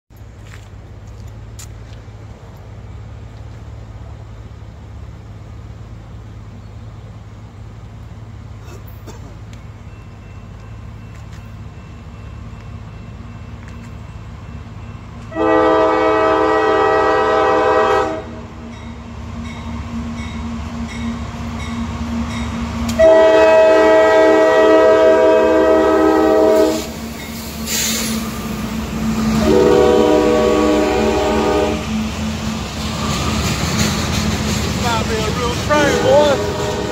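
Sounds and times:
diesel locomotive engine rumbling: 0.1 - 36.9
freight cars rolling past: 0.1 - 36.9
locomotive air horn blasts: 15.3 - 18.6, 22.9 - 27.0, 29.3 - 32.0, 35.6 - 36.9.

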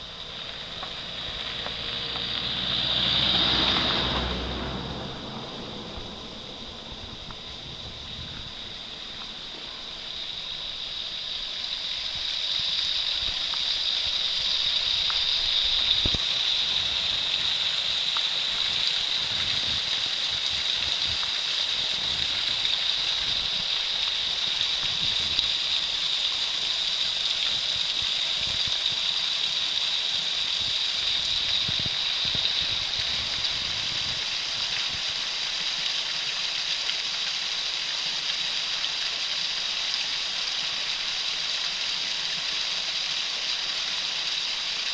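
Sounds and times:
waterfall splashing onto rocks: 0.0 - 44.9.

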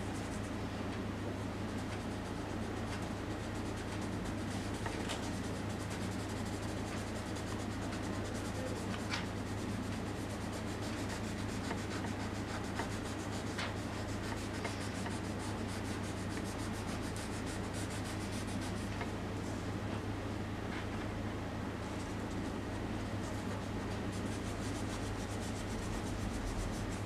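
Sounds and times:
hand rubbing on paper: 2.8 - 19.1, 21.8 - 27.0.

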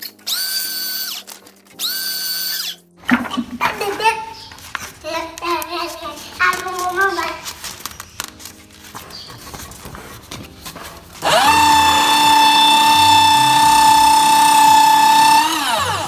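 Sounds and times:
paper shredder whining: 0.0 - 2.8, 11.2 - 16.0
paper rustling: 1.2 - 1.8, 3.3 - 11.2.

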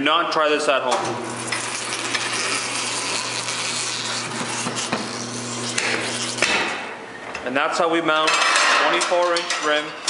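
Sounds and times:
tyre bead scraping over rim: 1.5 - 6.5.

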